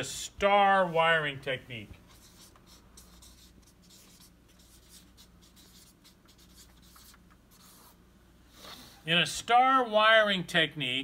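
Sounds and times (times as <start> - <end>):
marker pen writing on paper: 2.0 - 8.0.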